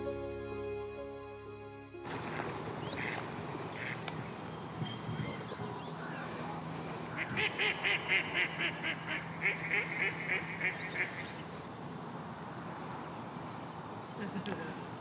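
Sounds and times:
waterfowl calling: 2.1s - 11.8s.

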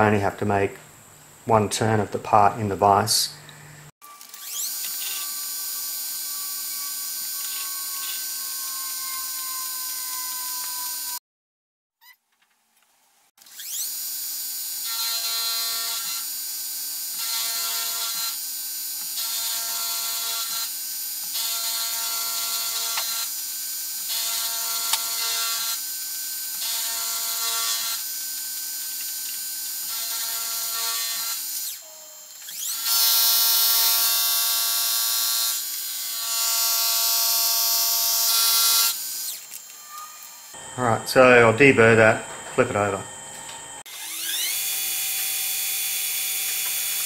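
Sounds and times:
milling cutter whirring: 28.9s - 47.0s
motor hum: 37.2s - 47.0s.

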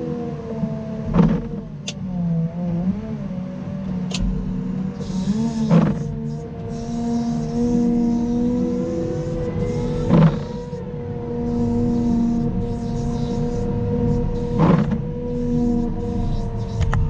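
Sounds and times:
diesel engine running: 0.7s - 17.0s
sharp knocks: 4.1s - 6.1s.

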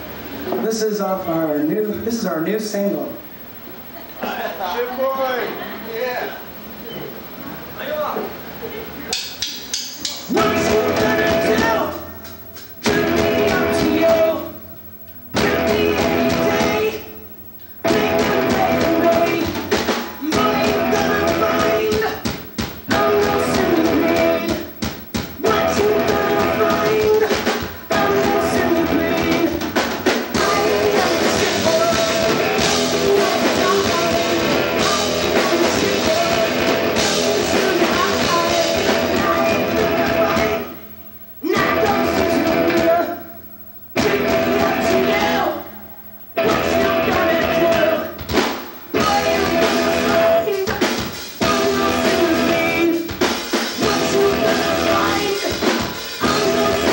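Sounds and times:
drums: 6.4s - 56.9s
person singing: 10.3s - 12.1s, 12.8s - 14.6s, 15.3s - 17.2s, 17.8s - 22.3s, 22.9s - 24.7s, 25.4s - 29.7s, 30.4s - 40.8s, 41.4s - 43.3s, 44.0s - 45.7s, 46.4s - 48.2s, 49.0s - 56.9s
electric guitars: 10.3s - 56.9s.

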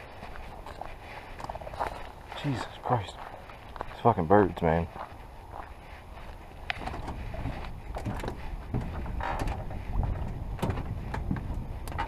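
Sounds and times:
footsteps on metal gangway: 0.0s - 12.0s
wind rumble on microphone: 5.2s - 12.0s.

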